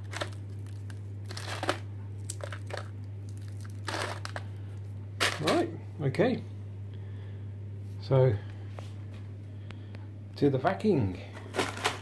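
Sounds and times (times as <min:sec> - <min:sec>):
dry food pieces crunching: 0:00.0 - 0:05.7
steady low hum: 0:00.0 - 0:12.0.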